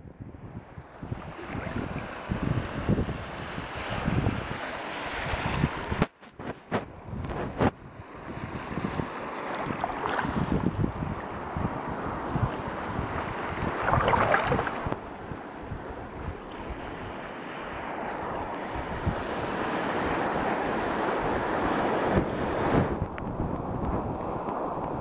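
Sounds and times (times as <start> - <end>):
wind: 0.0 - 25.0
rushing water: 1.0 - 6.5, 8.0 - 25.0.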